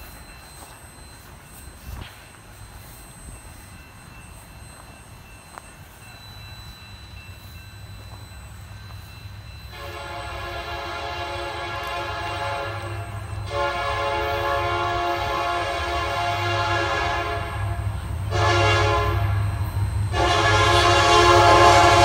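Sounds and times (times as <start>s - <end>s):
freight train cars rumbling past: 0.0s - 22.0s
locomotive air horn blasts: 9.7s - 22.0s.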